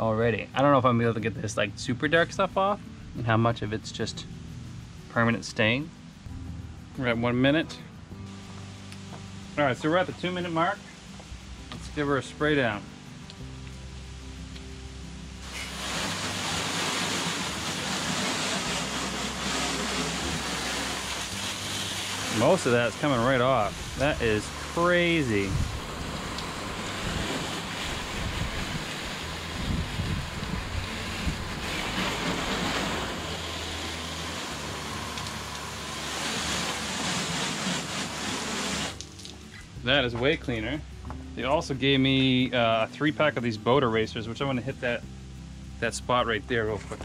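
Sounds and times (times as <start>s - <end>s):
hose spraying water on metal hull: 15.3s - 40.8s.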